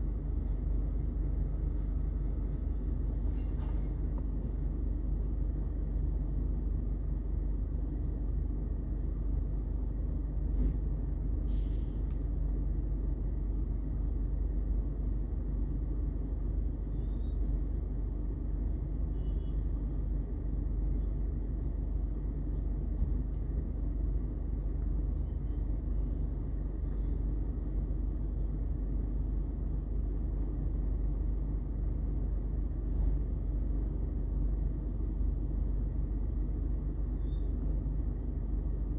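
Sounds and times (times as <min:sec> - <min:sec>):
faint clicks and squeaks: 0:16.9 - 0:17.7, 0:37.2 - 0:37.7.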